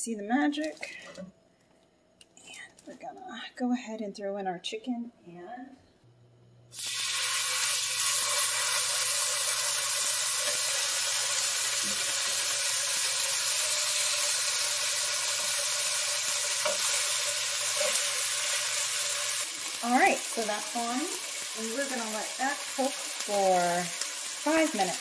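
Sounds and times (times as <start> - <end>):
chicken and onions sizzling in pan: 6.7 - 25.0.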